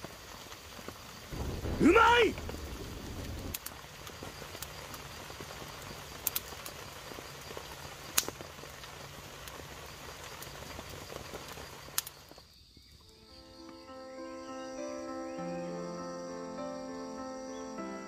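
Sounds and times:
campfire crackling and hissing: 0.0 - 18.0
loud pops of fire: 0.8 - 12.3.

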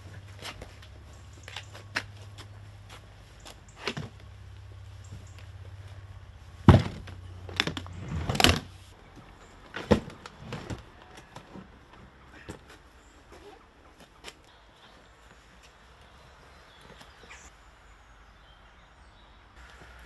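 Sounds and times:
bumps and scrapes: 0.0 - 14.5
suitcases knocking and thumping: 6.6 - 8.7, 9.6 - 12.8.

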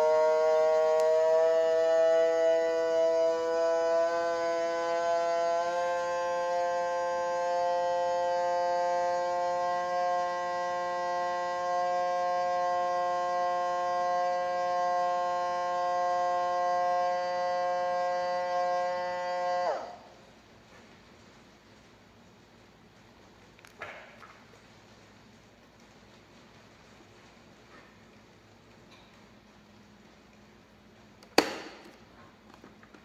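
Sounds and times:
vacuum sealer pump whining hum: 0.0 - 20.9.

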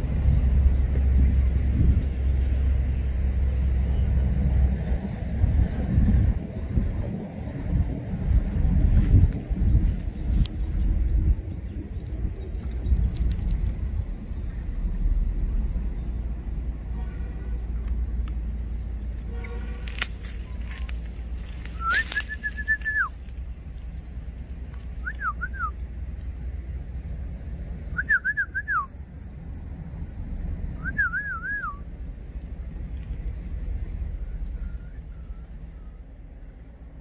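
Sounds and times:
low rumble: 0.0 - 25.2
whistled phrases: 21.7 - 23.2, 28.0 - 28.9, 30.8 - 31.8.

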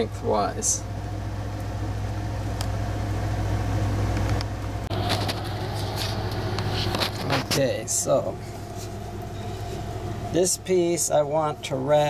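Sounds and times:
low mechanical hum: 0.0 - 12.0
rustling and handling noises: 4.2 - 7.7, 8.4 - 10.1.

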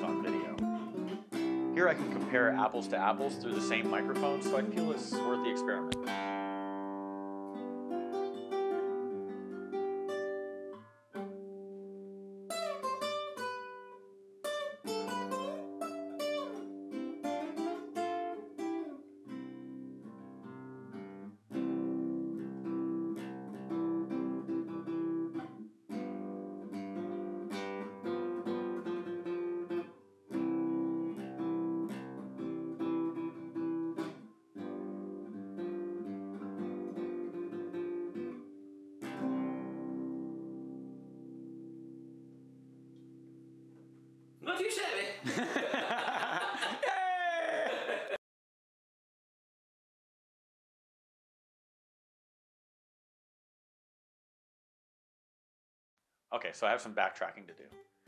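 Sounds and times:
classical guitar playing: 0.0 - 44.3.

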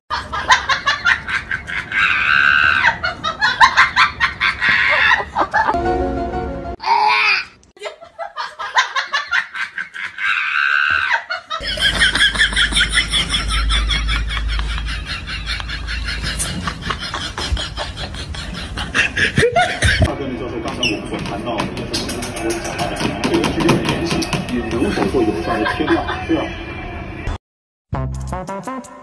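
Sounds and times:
laughter: 0.1 - 5.8, 7.8 - 20.1, 24.9 - 26.4
music: 5.8 - 6.8, 27.9 - 29.0.

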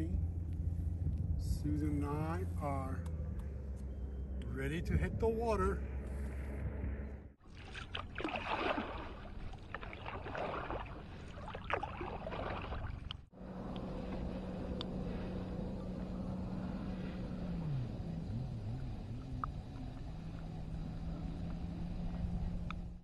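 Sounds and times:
low engine hum: 0.0 - 23.0
water splashing and lapping: 7.4 - 18.4.

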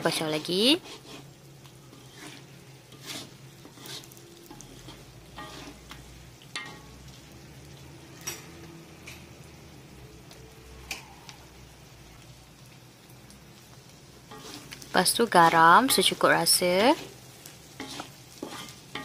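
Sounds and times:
spatula scraping a wok: 0.0 - 7.0, 14.1 - 19.0
food sizzling: 0.0 - 19.0.

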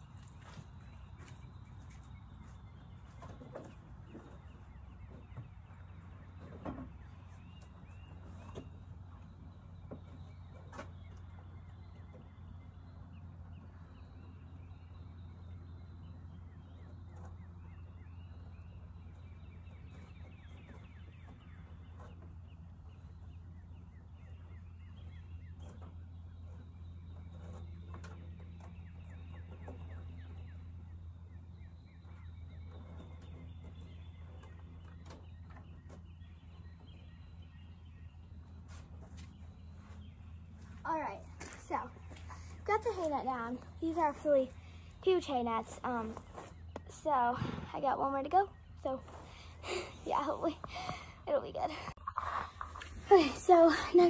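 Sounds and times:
birds chirping: 0.0 - 54.0
low rumble: 11.0 - 54.0.

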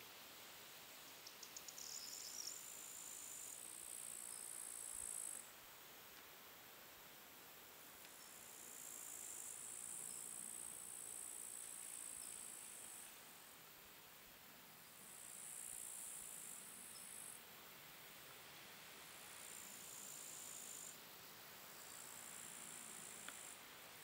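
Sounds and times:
quick insect chirps: 1.2 - 5.4, 15.0 - 17.4
bush-crickets trilling: 1.2 - 5.5, 8.1 - 13.5, 14.9 - 17.4, 19.2 - 24.0.

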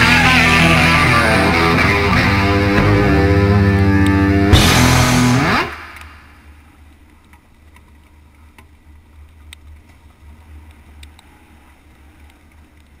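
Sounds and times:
motorcycle engine rumble: 0.0 - 7.0
wind: 5.7 - 13.0.

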